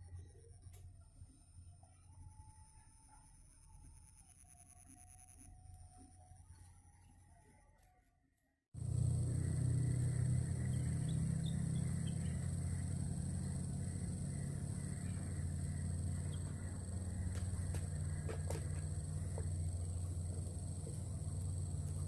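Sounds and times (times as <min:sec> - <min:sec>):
faint chirps: 0:08.8 - 0:22.0
faint clicks: 0:08.8 - 0:22.0
insect trill: 0:08.8 - 0:22.0
low rumble: 0:08.8 - 0:22.0.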